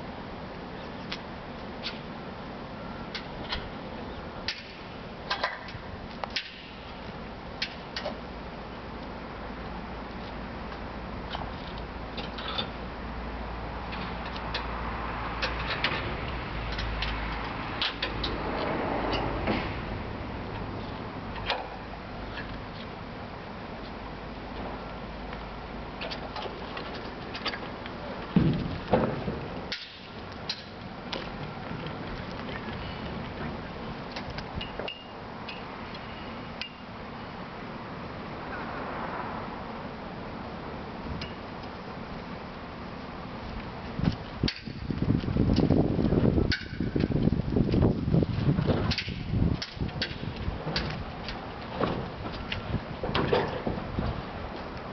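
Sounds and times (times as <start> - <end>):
low background rumble: 0.0 - 38.6
wind noise: 26.2 - 34.9, 43.3 - 54.9.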